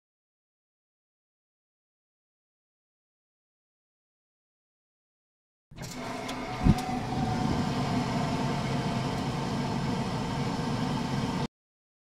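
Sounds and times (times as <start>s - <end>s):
gas burner rumbling hiss: 5.8s - 11.5s.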